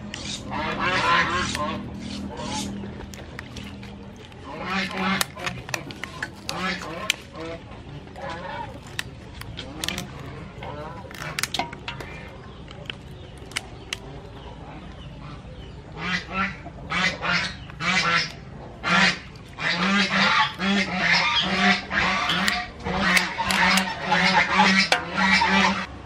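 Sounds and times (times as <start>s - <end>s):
birds honking: 0.0s - 12.6s, 15.1s - 25.9s
scissors snipping crab shell: 4.8s - 7.5s, 8.7s - 10.4s, 11.0s - 14.1s, 22.2s - 23.9s.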